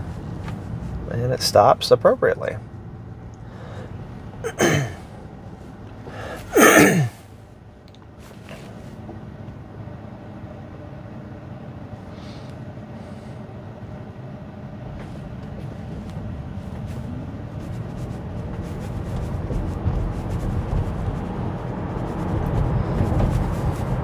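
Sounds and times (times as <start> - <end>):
road and tyre noise in car cabin: 0.0 - 24.0.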